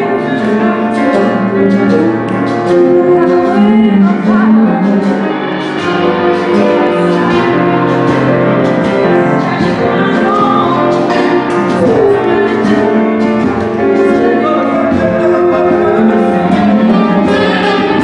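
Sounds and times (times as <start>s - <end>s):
group singing: 0.0s - 18.0s.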